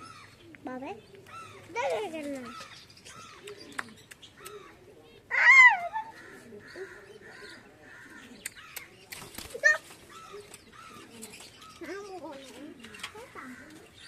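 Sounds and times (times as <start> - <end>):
pigeons cooing softly: 0.0 - 14.0
loud crow caw: 6.2 - 8.3.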